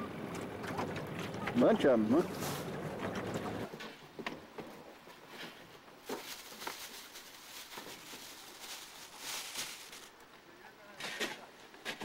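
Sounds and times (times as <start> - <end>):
boat noise: 0.0 - 3.8.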